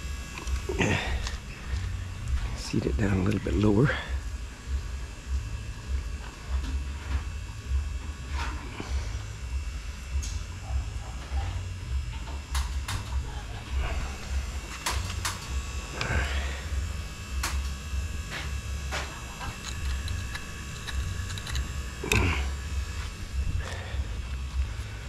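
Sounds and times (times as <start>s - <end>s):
low choppy rumble: 0.0s - 25.0s
small handling clicks: 19.4s - 22.2s.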